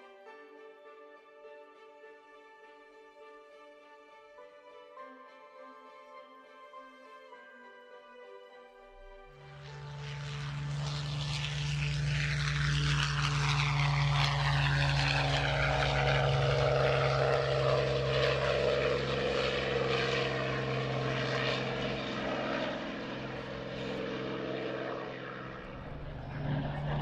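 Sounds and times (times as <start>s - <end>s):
propeller plane engine roaring: 9.4s - 27.0s.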